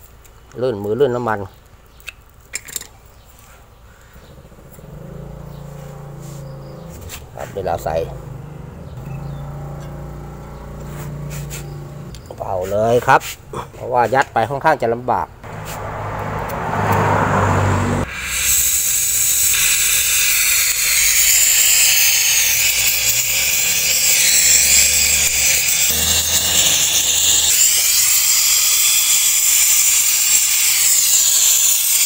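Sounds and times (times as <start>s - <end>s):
compressed gas rushing through tubing: 10.8s - 14.2s, 18.0s - 22.9s
loud high hiss: 18.0s - 31.5s.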